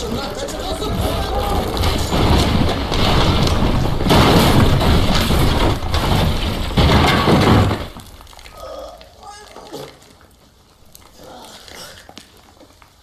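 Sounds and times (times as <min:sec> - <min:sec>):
heavy impacts: 0:00.0 - 0:08.6
ceiling debris crashing down: 0:00.0 - 0:10.3.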